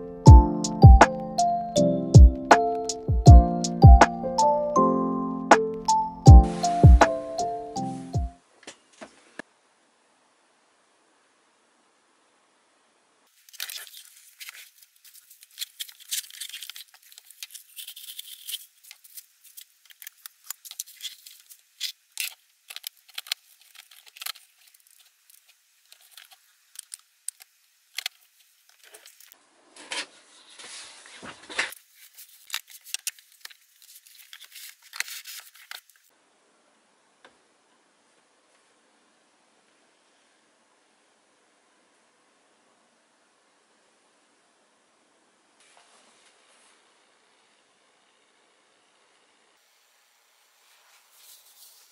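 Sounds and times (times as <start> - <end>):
packaging crinkling and tearing: 13.3 - 36.1
wrapping being pulled: 13.3 - 36.1
plastic parts clicking: 19.8 - 25.0.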